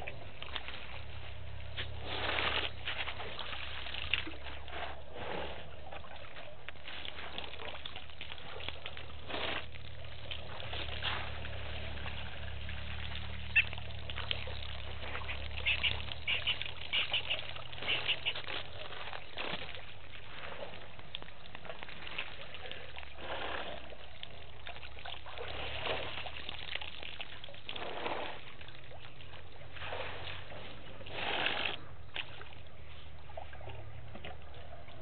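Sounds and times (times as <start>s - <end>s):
elephants splashing water: 0.0s - 35.0s
low hum: 8.3s - 21.7s.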